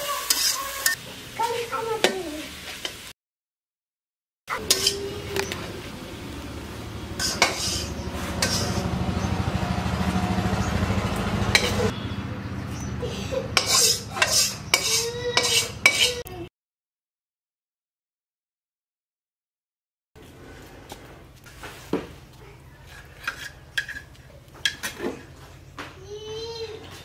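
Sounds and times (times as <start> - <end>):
metal spatula scraping iron pan: 0.0 - 1.0, 4.5 - 5.5, 7.1 - 8.9, 11.5 - 12.0, 13.5 - 16.3, 22.8 - 25.4.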